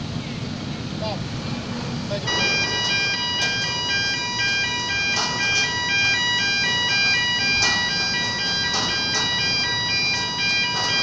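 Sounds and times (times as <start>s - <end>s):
crane warning chime tune: 2.3s - 11.0s.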